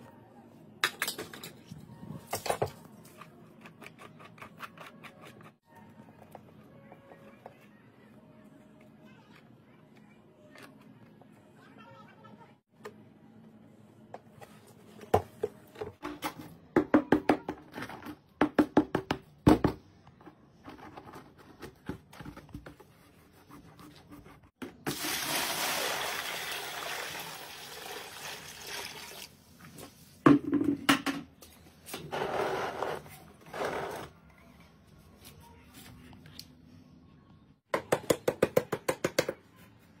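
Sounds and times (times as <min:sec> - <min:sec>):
water pouring into plastic tub: 0:24.9 - 0:29.4.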